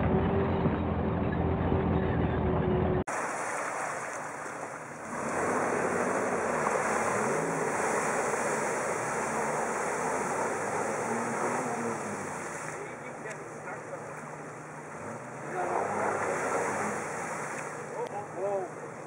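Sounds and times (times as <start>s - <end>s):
engine revving: 5.0s - 19.0s.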